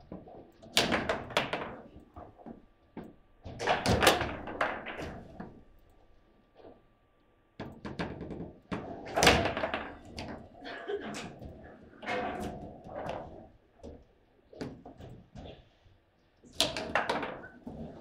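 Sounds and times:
table football knocks and clacks: 0:00.0 - 0:05.6, 0:07.6 - 0:10.5, 0:16.5 - 0:18.0.

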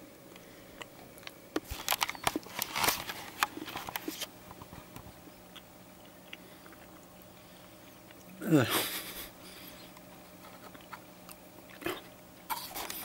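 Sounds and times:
person chewing crunchy chocolate: 0:05.2 - 0:08.5, 0:09.3 - 0:13.0.

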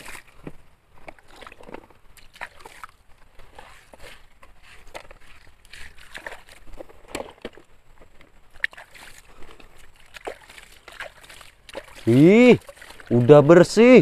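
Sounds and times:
water sloshing and splashing: 0:00.0 - 0:14.0
gravel stones clattering: 0:03.7 - 0:08.4.

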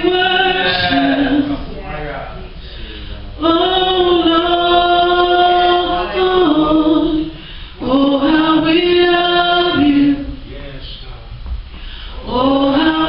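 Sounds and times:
woman singing gospel song: 0:00.0 - 0:01.9, 0:03.4 - 0:10.5, 0:12.1 - 0:13.0.

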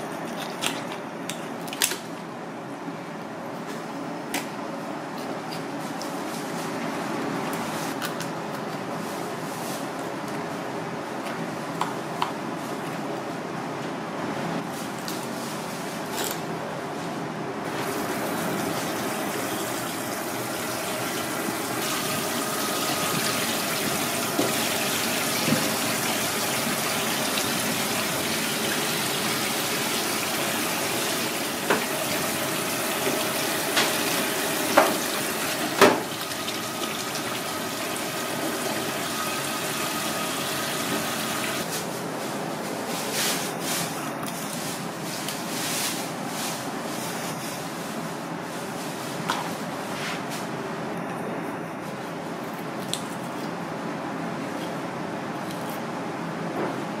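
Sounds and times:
tap water running: 0:17.7 - 0:41.6.

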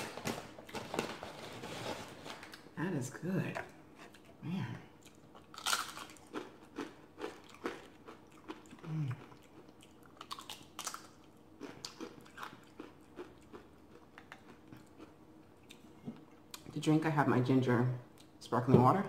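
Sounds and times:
tortilla chips crunching: 0:05.0 - 0:15.8.

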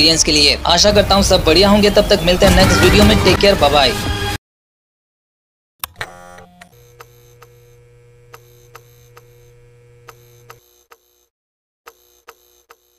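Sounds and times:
electrical hum of lights: 0:06.0 - 0:10.6.

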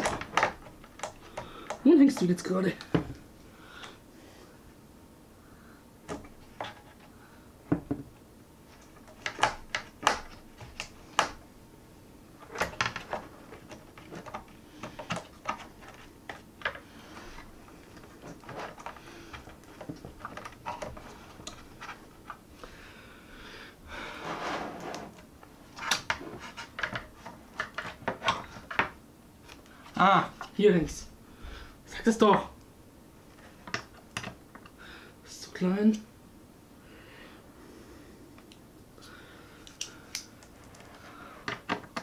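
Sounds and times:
hands tapping computer parts: 0:00.0 - 0:03.2, 0:08.8 - 0:11.4, 0:12.4 - 0:16.9, 0:17.8 - 0:22.4, 0:25.8 - 0:29.7, 0:33.6 - 0:34.7, 0:39.7 - 0:42.0
rubbing and scraping: 0:24.1 - 0:28.8.

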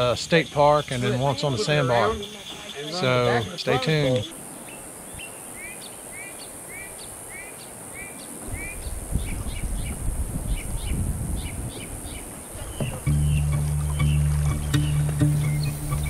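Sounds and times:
bird chirping: 0:00.7 - 0:16.0
low rumbling noise: 0:12.9 - 0:16.0.

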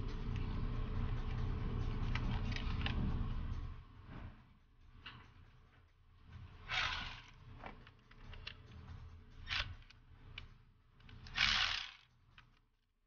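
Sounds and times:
hand ratchet clicking: 0:06.6 - 0:07.4, 0:09.4 - 0:12.6.

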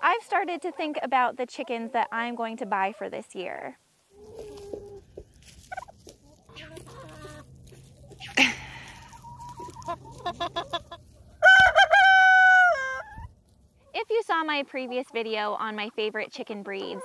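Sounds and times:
hens clucking: 0:00.1 - 0:17.0
rooster crowing: 0:11.4 - 0:13.1.

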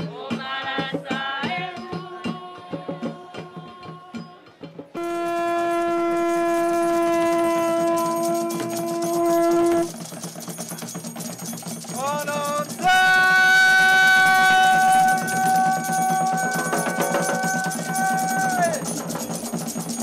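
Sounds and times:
horn blast rising in pitch: 0:05.0 - 0:09.9, 0:12.8 - 0:17.8
horn held notes: 0:05.0 - 0:10.0, 0:12.8 - 0:18.8.

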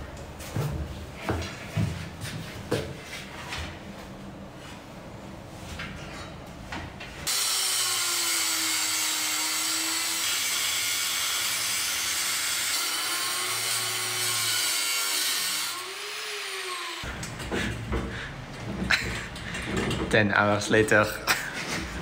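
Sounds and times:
angle grinder cutting metal pipe: 0:07.3 - 0:17.1.

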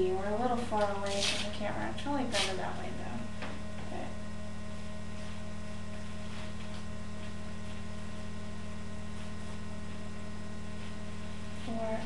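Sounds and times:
electrical mains hum: 0:00.0 - 0:12.0
soft rustles: 0:05.2 - 0:07.9.

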